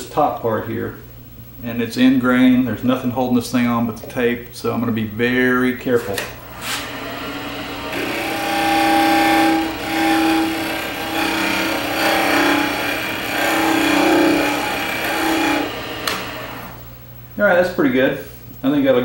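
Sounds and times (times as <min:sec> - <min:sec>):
wood lathe hum: 0:06.4 - 0:16.8
gouge scraping spinning wood: 0:06.5 - 0:16.8.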